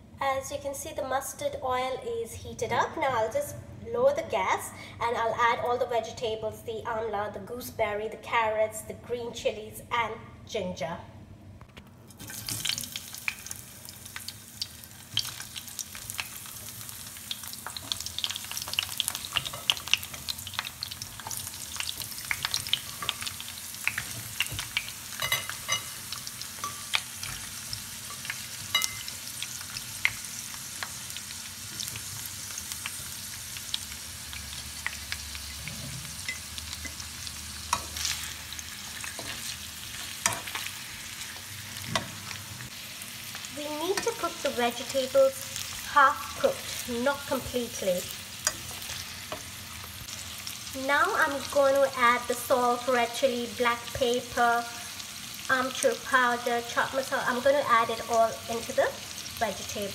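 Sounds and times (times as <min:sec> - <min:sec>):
vegetables sizzling in hot oil: 0:12.1 - 0:59.9.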